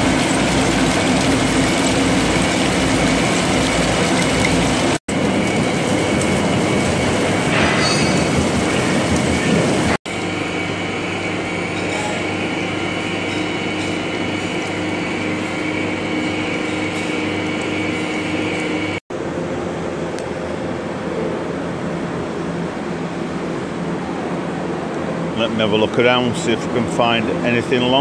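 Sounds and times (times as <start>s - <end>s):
coolant hiss: 0.0s - 10.0s
lathe machining rumble: 0.0s - 28.0s.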